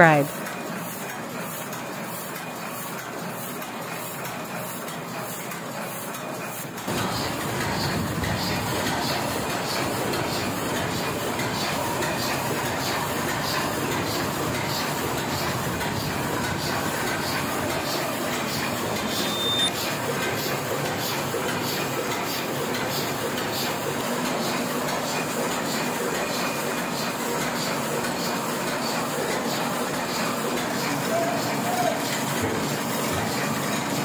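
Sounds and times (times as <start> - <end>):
printing press clatter: 0.3 - 34.0
brief high squeak: 19.1 - 19.7.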